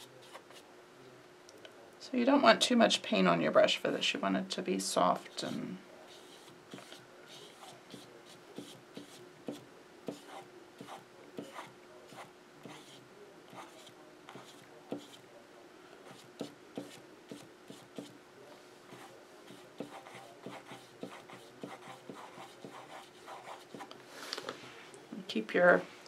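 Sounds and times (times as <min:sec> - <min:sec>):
brush scratching on canvas: 0:00.0 - 0:00.6, 0:05.2 - 0:15.2, 0:16.0 - 0:18.2, 0:18.9 - 0:23.9
faint steady hum: 0:00.0 - 0:26.0.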